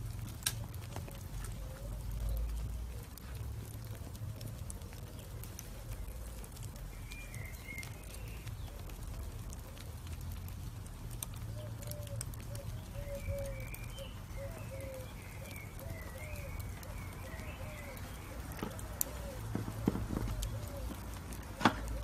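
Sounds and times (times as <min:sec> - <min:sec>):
low steady rumble: 0:00.0 - 0:14.4
charcoal embers crackling: 0:00.0 - 0:22.0.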